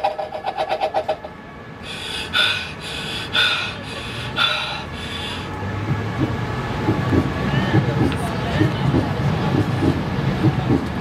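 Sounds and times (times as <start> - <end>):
breathy hissing: 1.8 - 5.5.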